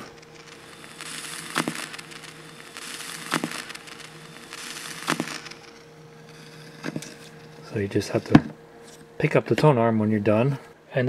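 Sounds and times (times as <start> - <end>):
swishing record surface noise: 0.0 - 8.5
low steady hum: 0.0 - 11.0
record stylus clicking: 1.4 - 5.8, 6.7 - 7.2.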